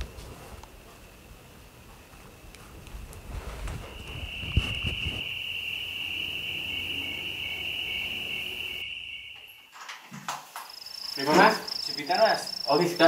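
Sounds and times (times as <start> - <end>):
cricket trilling: 3.5 - 13.0.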